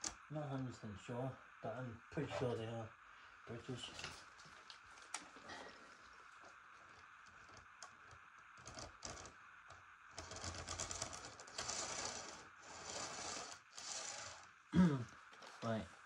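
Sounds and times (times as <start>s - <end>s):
faint steady hum: 0.0s - 16.0s
plastic model coaches clicking: 7.4s - 14.5s.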